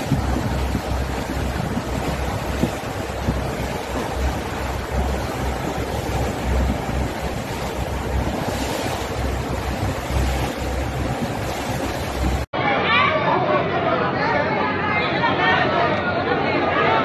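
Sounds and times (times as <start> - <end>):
sea water rushing: 0.0 - 12.5
wind buffeting microphone: 0.0 - 12.5.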